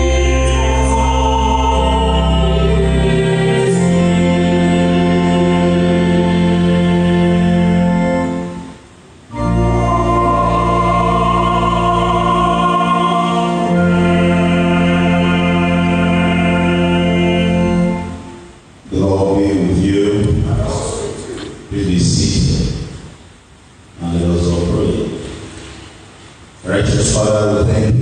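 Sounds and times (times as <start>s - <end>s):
organ held chords: 0.0s - 20.9s.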